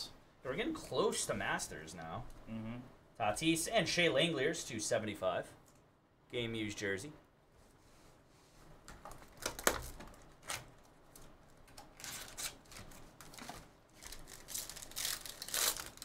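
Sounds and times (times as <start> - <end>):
foil wrapper crinkling and tearing: 9.2 - 16.0.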